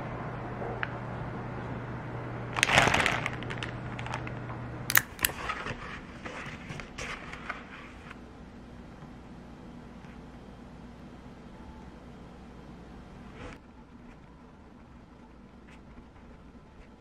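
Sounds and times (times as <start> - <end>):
plastic bags crinkling: 2.6 - 4.3.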